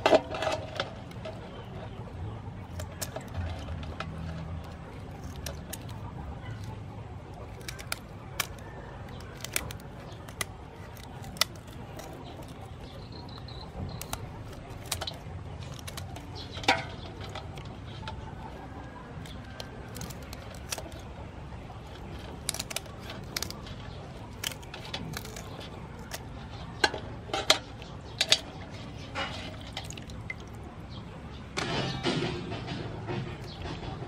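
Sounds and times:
scissors snipping shells: 2.6 - 21.1, 21.8 - 26.9
water dripping and splashing: 27.7 - 30.7.

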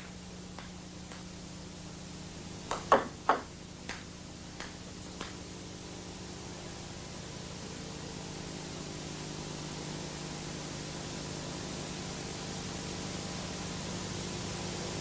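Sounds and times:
steady low hum: 0.0 - 15.0
table tennis ball hits: 2.7 - 4.0.

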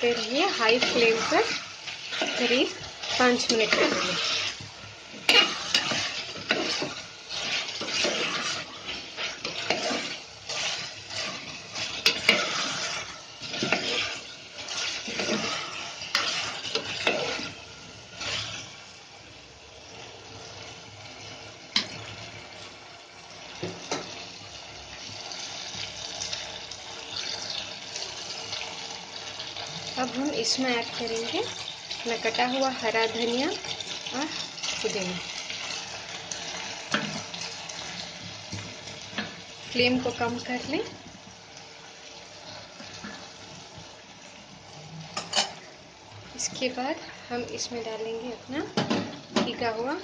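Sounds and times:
spoon stirring and scraping pot: 0.0 - 18.8
frying sizzle: 0.0 - 50.0.

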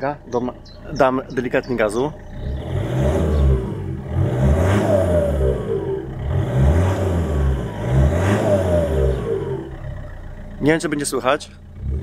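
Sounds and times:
diesel car engine revving: 0.0 - 12.0.

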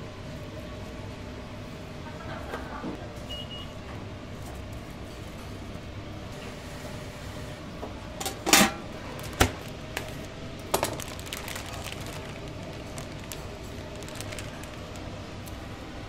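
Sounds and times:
utensils and dishes clattering: 8.2 - 8.9.

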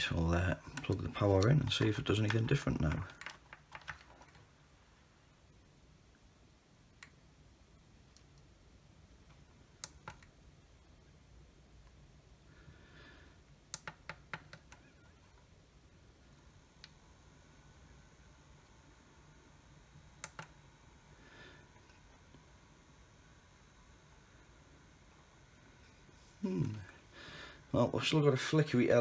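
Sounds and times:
hands clicking on circuit board: 9.8 - 10.3, 13.7 - 14.8, 20.2 - 20.5.

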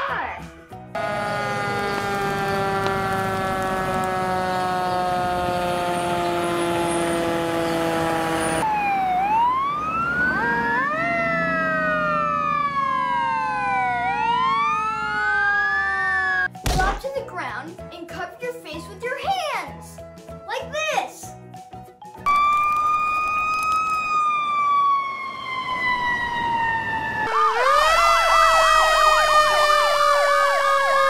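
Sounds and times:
wailing sirens: 0.9 - 16.5, 22.3 - 31.0
siren tone sliding down: 1.0 - 16.5, 22.3 - 31.0.

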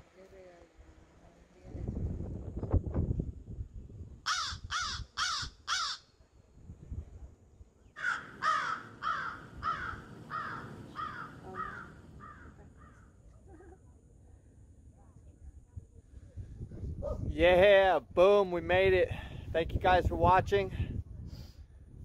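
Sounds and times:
wind buffeting microphone: 0.8 - 5.7, 6.5 - 7.6, 15.3 - 22.0
crow-like bird calling: 4.2 - 6.1, 8.0 - 13.1.

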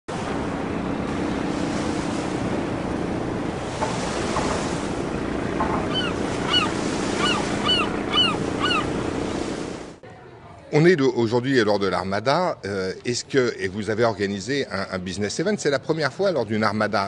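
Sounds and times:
surf washing: 0.1 - 10.0
gulls crying: 0.4 - 10.0.

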